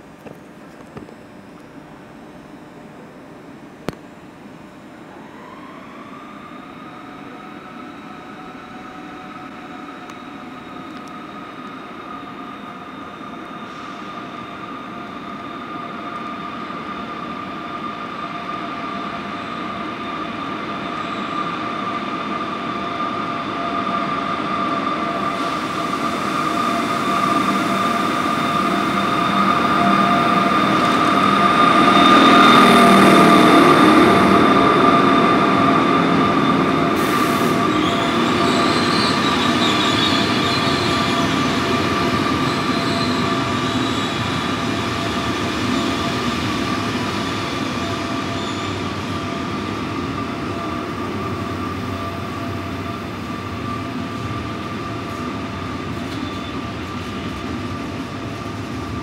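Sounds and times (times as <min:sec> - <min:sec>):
train rumbling past: 0:05.1 - 0:59.0
high-pitched wheel squeal: 0:26.4 - 0:53.9, 0:56.0 - 0:57.3.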